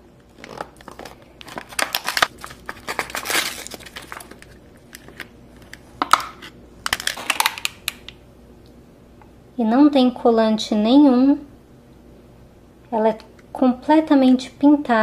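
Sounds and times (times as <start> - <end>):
plastic packaging crinkling: 0.2 - 8.1.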